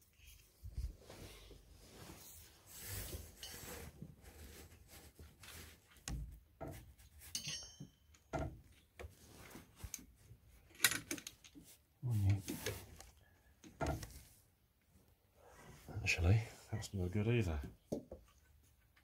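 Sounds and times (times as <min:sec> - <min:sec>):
metallic ring: 0:07.3 - 0:08.2
tools clicking and knocking: 0:10.7 - 0:11.6.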